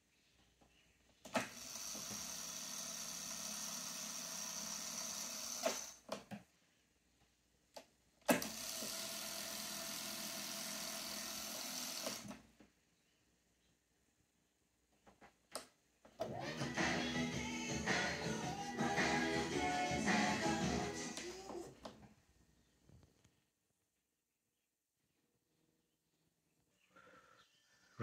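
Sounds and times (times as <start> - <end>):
tape transport whirring: 16.2 - 22.0.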